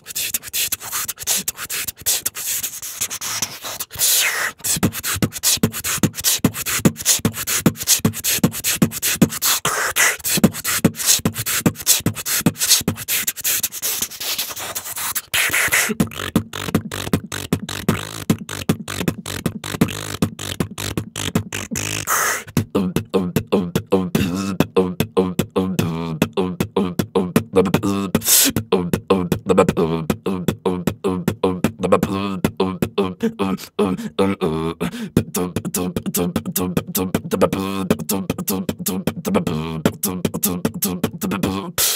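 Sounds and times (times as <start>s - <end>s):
beatboxing: 0.0s - 41.9s.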